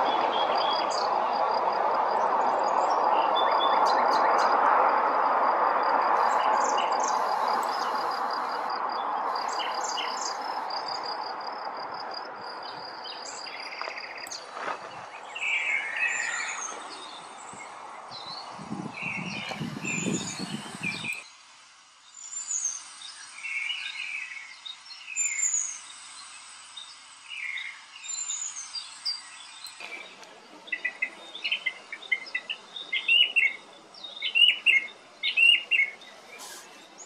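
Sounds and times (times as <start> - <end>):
birds chirping: 0.0 - 4.7, 5.8 - 37.0
passing vehicle road noise: 0.0 - 21.2.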